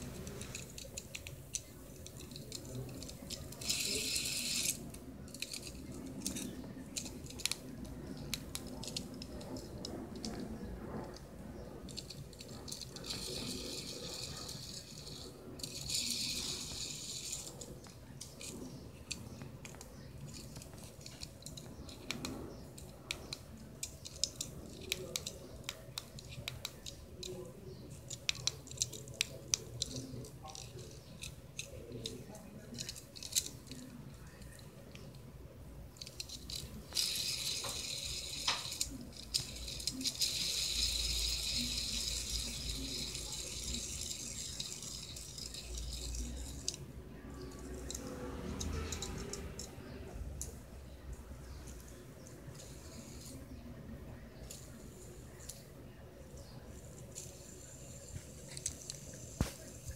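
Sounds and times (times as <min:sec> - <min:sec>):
fidget spinner clicking and rattling: 0:00.0 - 0:59.9
hissing rustle: 0:56.4 - 0:59.9.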